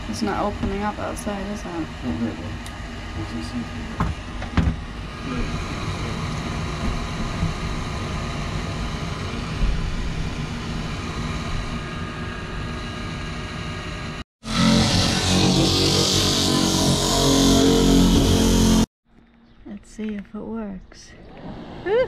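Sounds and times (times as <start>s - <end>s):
extractor fan whirring hum: 0.0s - 14.2s.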